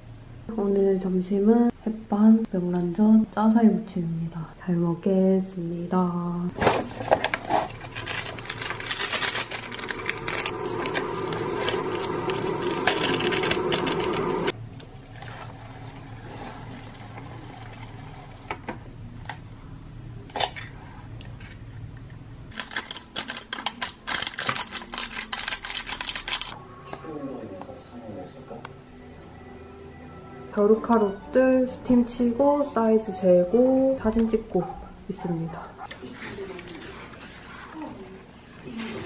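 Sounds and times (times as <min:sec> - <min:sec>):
sachets tearing and crinkling: 0:06.6 - 0:14.5, 0:22.5 - 0:26.6
hot water pouring into cup: 0:09.4 - 0:18.6.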